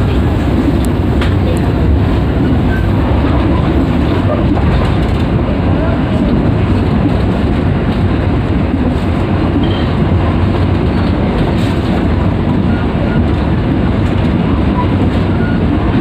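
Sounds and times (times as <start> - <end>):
train wheels on rails: 0.0 - 16.0.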